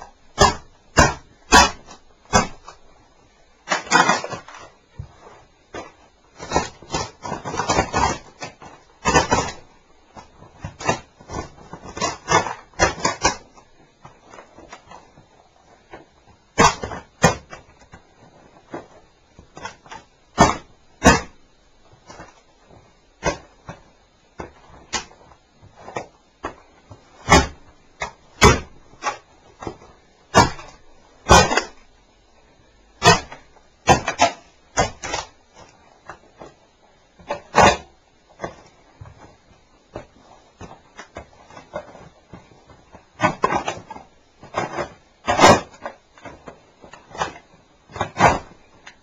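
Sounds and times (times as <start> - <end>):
plastic cracking under boots: 0.0 - 32.0, 32.9 - 49.0.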